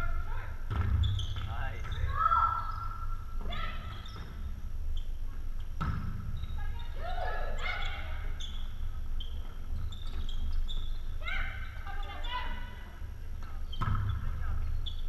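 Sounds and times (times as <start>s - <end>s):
ball being hit: 5.8s - 6.2s.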